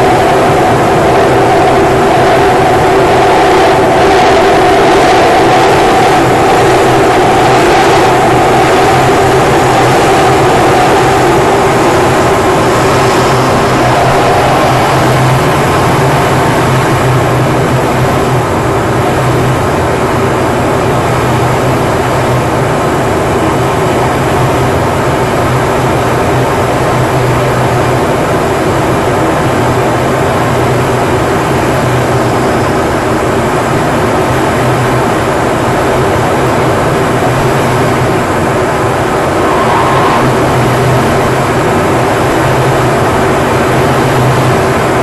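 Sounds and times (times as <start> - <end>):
jet cockpit noise: 0.0 - 45.0.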